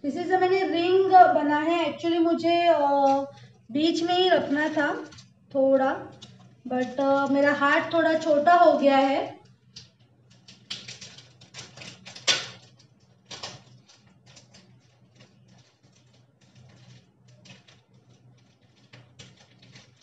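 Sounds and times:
plastic crinkling: 2.7s - 8.5s, 9.4s - 20.0s
small clicks and crackles: 3.0s - 3.6s, 4.3s - 8.3s, 9.3s - 20.0s.

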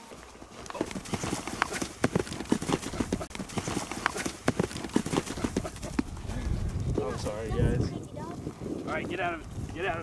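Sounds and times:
footsteps crunching on dry ground: 0.0s - 7.5s.

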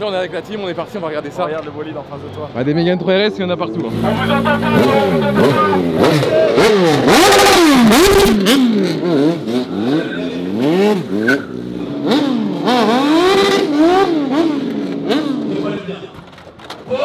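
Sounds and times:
motorcycle engine revving: 3.4s - 15.9s.

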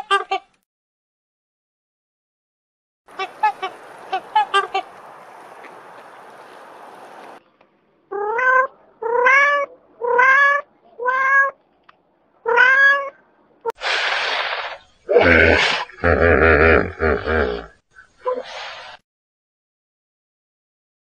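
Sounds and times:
waterfowl honking: 3.1s - 7.1s
cat meowing: 8.1s - 11.6s, 12.4s - 13.2s
loud burst of hissing noise: 13.8s - 14.9s.

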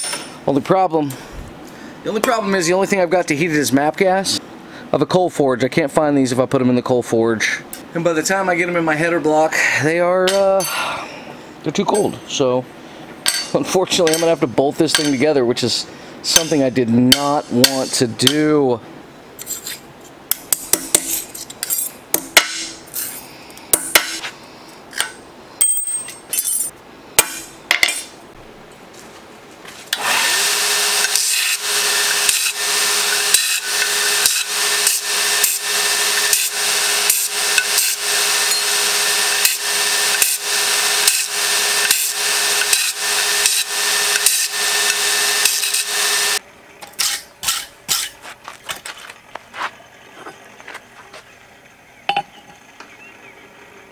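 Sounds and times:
wire brush scraping steel: 19.4s - 19.9s, 30.9s - 48.3s
grinder grinding steel rod: 30.0s - 48.2s.

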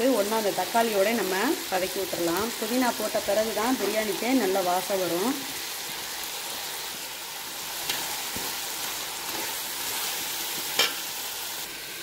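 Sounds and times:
vegetables sizzling in hot oil: 0.0s - 12.0s.

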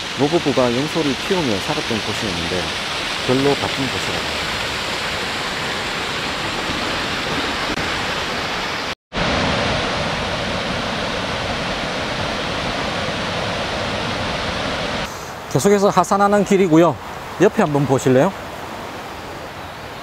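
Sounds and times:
stream rushing over boulders: 0.0s - 20.0s.

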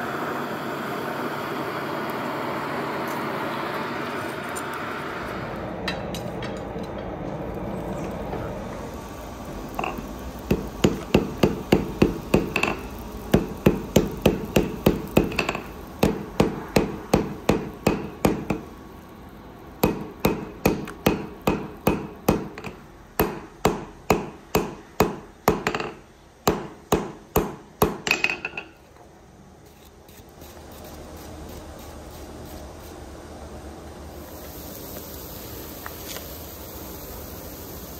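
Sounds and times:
hammer striking steel on anvil: 9.8s - 18.7s, 19.8s - 28.8s.

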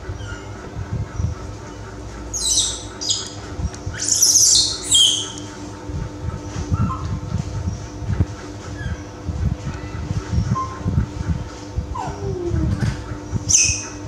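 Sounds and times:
baby monkey crying: 3.9s - 5.4s, 13.5s - 14.0s.

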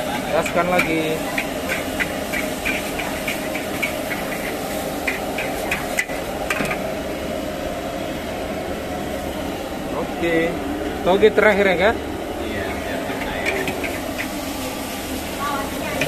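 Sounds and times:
frying hiss: 0.0s - 16.0s
metal spatula scraping wok: 0.2s - 6.8s, 12.6s - 16.0s.

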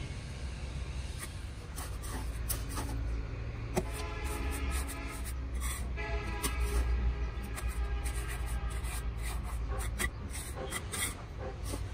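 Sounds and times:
mortar scraping on mould: 3.8s - 11.9s.

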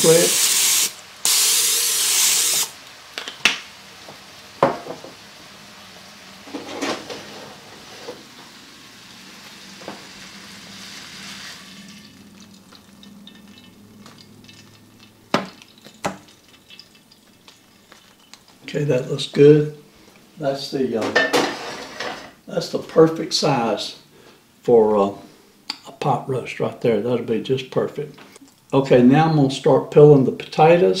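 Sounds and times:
aerosol spray hissing: 0.0s - 2.8s
meat sizzling in skillet: 0.0s - 18.6s.

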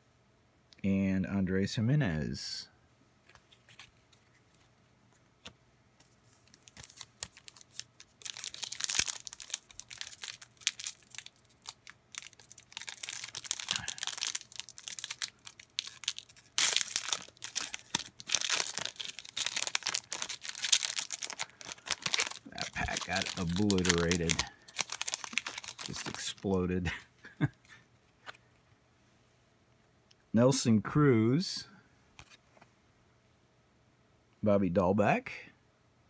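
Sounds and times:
foil wrapper tearing and crinkling: 6.4s - 26.6s.

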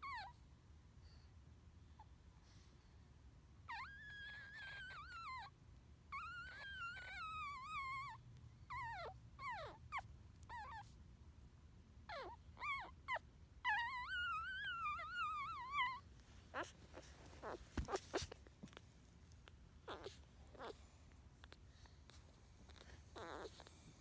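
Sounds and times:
puppy squeaking: 0.0s - 0.4s, 3.7s - 5.5s, 6.1s - 10.9s, 12.1s - 24.0s.

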